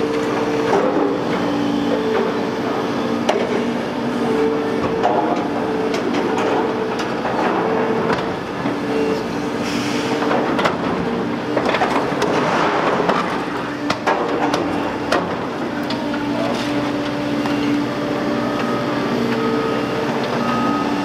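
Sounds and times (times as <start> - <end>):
excavator engine and hydraulics hum: 0.0 - 21.0
knocks and clatter of demolition: 10.2 - 17.2.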